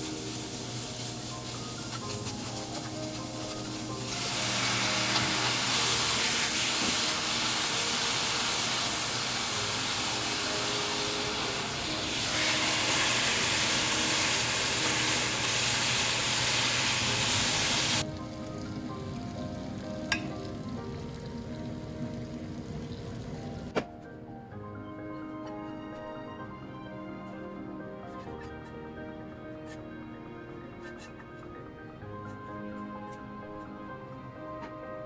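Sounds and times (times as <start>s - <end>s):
meat sizzling in a frying pan: 0.0s - 19.0s
background music: 0.0s - 35.0s.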